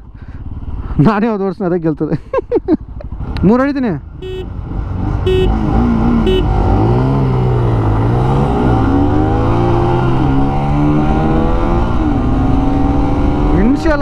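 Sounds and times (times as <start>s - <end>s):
motorcycles accelerating hard: 2.8s - 14.0s
short horn beeps: 4.2s - 4.5s, 5.3s - 5.6s, 6.2s - 6.5s.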